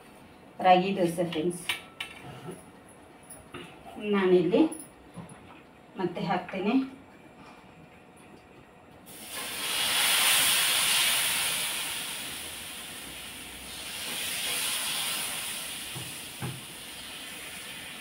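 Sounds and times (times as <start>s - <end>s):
batter sizzling on hot pan: 9.1s - 18.0s.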